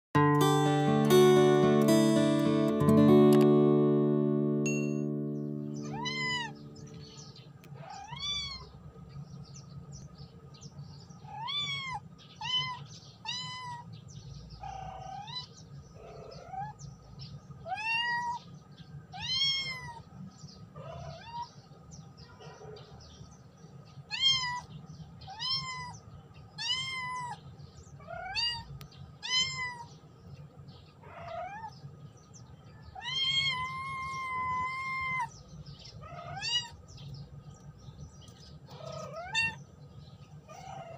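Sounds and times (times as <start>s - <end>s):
kitten meowing: 5.8s - 6.8s, 7.8s - 8.7s, 11.3s - 13.8s, 17.7s - 18.4s, 19.2s - 20.0s, 24.1s - 24.7s, 25.3s - 26.0s, 26.6s - 27.4s, 28.0s - 29.9s, 33.0s - 35.3s, 36.0s - 36.8s, 38.7s - 39.6s.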